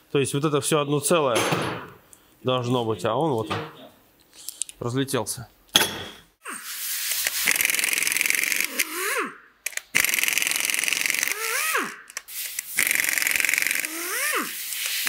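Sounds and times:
impact wrench spinning free whine: 7.4s - 15.0s
impact wrench hammering: 12.8s - 14.3s.

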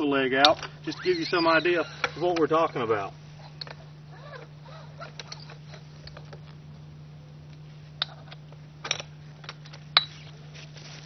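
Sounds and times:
tripod leg sliding: 0.8s - 6.4s.

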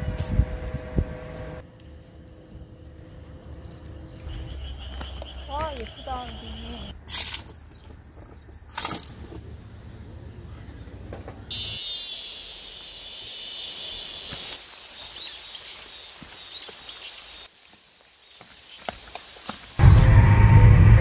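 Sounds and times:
birds chirping: 2.1s - 19.8s
steady high hiss: 11.5s - 18.2s
low rumble: 19.8s - 21.0s.

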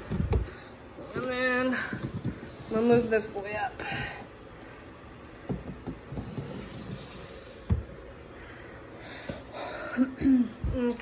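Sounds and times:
plastic tubs sliding and knocking: 1.2s - 4.2s, 5.4s - 8.0s.

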